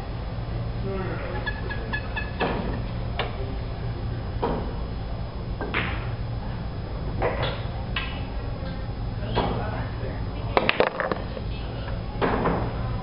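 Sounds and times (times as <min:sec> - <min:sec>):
low steady hum: 0:00.0 - 0:13.0
pool balls clacking: 0:05.6 - 0:06.2, 0:10.5 - 0:11.6.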